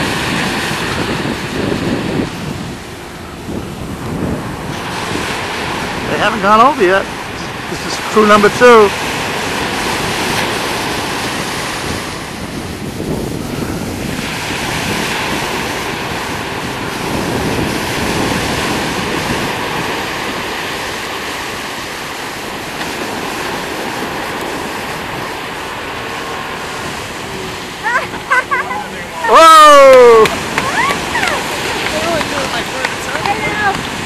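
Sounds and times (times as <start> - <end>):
sea surf washing ashore: 0.0 - 34.0
wind on microphone: 0.0 - 34.0.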